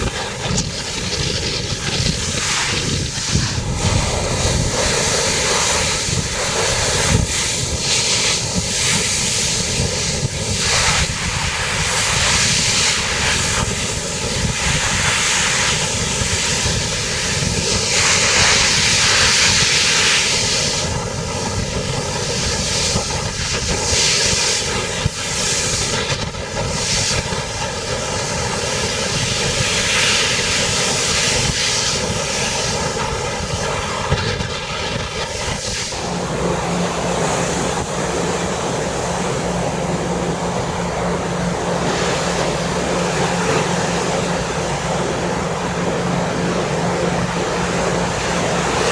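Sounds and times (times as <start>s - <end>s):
engine drone: 0.0s - 48.9s
wind gusting on microphone: 0.0s - 48.9s.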